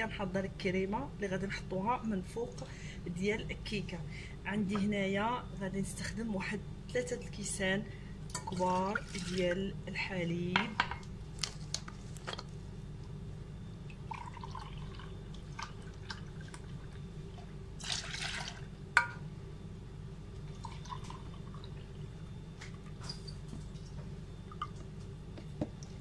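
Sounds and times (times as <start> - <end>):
steady low hum: 0.0 - 26.0
milk pouring into a glass: 14.0 - 18.7, 20.5 - 21.9.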